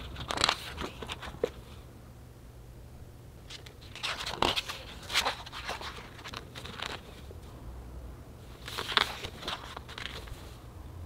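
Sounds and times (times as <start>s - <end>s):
book pages turning: 0.0s - 1.8s, 3.5s - 7.3s, 8.5s - 10.6s.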